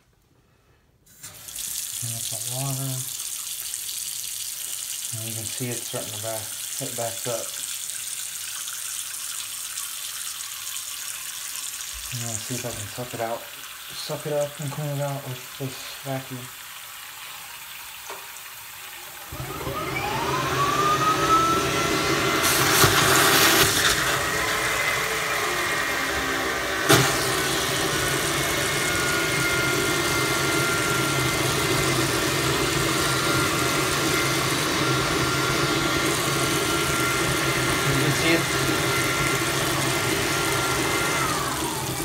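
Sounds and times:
hose sucking at drain: 0:09.4 - 0:16.5, 0:17.2 - 0:42.0
vacuum cleaner motor whine: 0:19.0 - 0:42.0.

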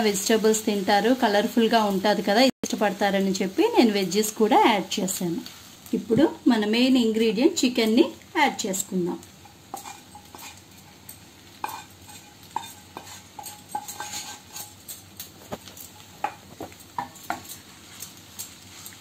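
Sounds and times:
wooden spatula scraping pan: 0:09.4 - 0:11.0, 0:11.6 - 0:14.8
wood knocking on pans: 0:15.5 - 0:17.5.

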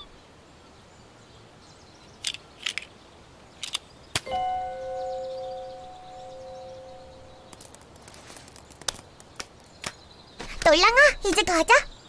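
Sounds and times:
two-note musical tone: 0:04.3 - 0:07.5.

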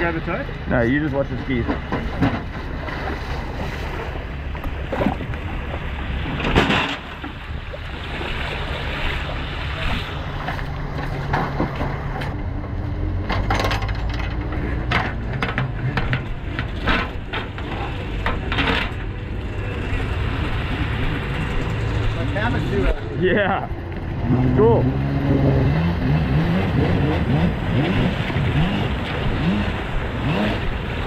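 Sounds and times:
knocks and clatters: 0:01.4 - 0:03.0, 0:06.3 - 0:07.4, 0:10.4 - 0:19.3.

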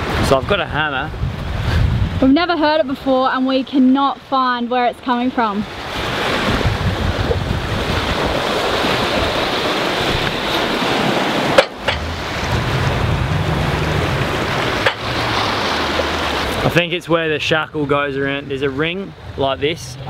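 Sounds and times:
wind buffeting microphone: 0:00.0 - 0:03.6, 0:05.6 - 0:18.0
water rushing past boat hull: 0:00.0 - 0:20.0.

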